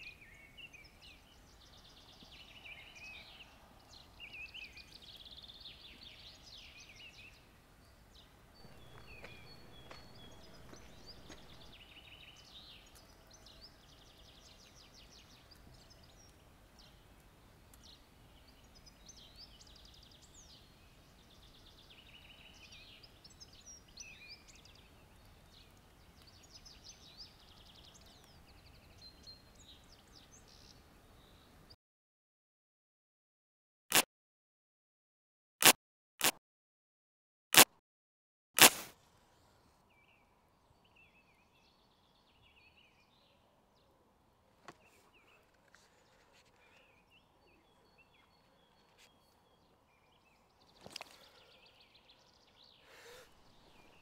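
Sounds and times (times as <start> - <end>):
low outdoor hiss: 0.0 - 31.7
woodland birdsong: 0.0 - 31.8, 39.0 - 54.0.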